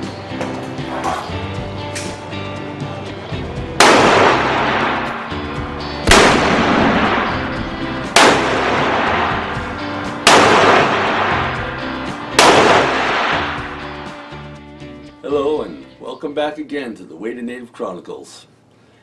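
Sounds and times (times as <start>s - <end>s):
background music: 0.0s - 17.5s
loud gunshots with echo: 3.8s - 5.3s, 6.0s - 13.8s.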